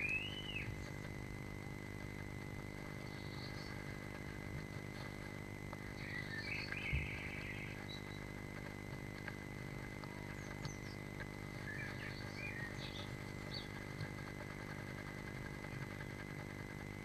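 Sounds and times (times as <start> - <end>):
faint bird chirps: 0.0 - 1.1, 2.8 - 5.2, 5.8 - 8.7, 9.8 - 16.3
low electrical hum: 0.0 - 17.0.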